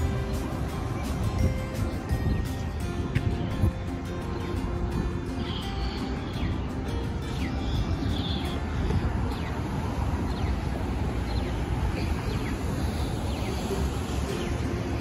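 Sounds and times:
traffic noise: 0.0 - 15.0
wind rumble on microphone: 0.0 - 15.0.

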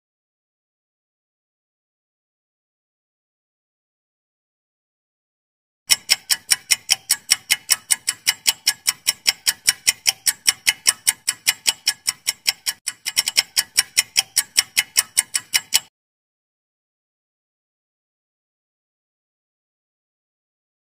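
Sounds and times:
clock ticking: 5.9 - 15.9.

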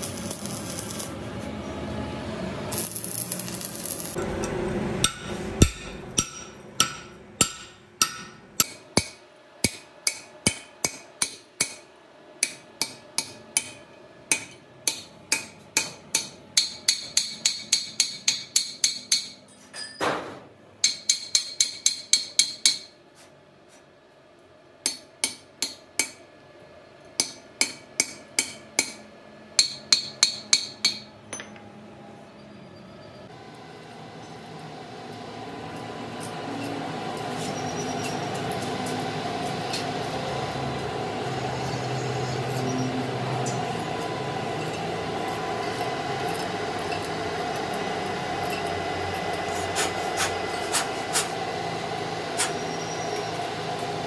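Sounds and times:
arc welding crackle: 0.0 - 1.4, 2.7 - 4.2
hammer striking steel: 2.8 - 23.0, 24.8 - 26.3, 27.2 - 31.7.

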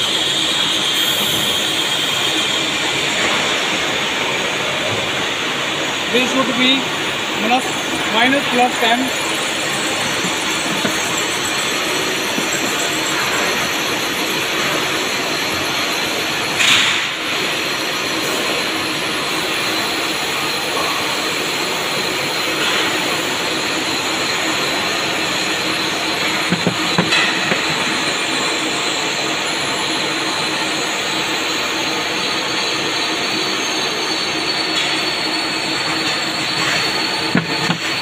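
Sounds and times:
lathes running: 6.2 - 16.6.

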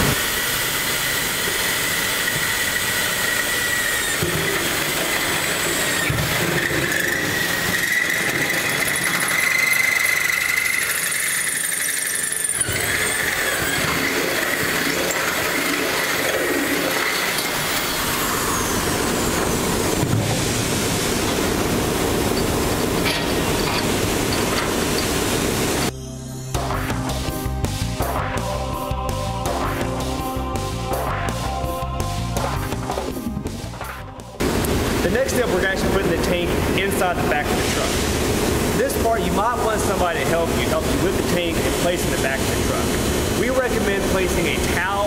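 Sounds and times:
electric drill boring metal: 0.0 - 20.0, 21.2 - 25.9
high-pitched drill squeal: 0.4 - 20.0.

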